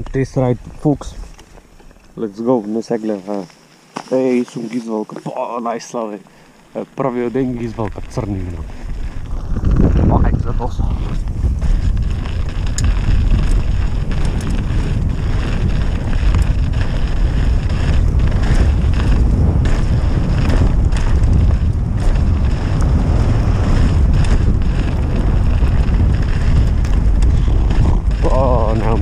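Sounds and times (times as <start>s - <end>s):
wind buffeting microphone: 0.0s - 2.9s, 6.8s - 29.0s
tyre rumble on gravel: 0.0s - 29.0s
bike clicks and rattles: 6.3s - 29.0s.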